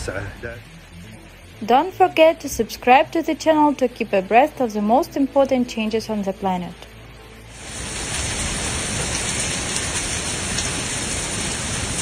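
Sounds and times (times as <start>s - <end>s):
torrential rain: 7.0s - 12.0s.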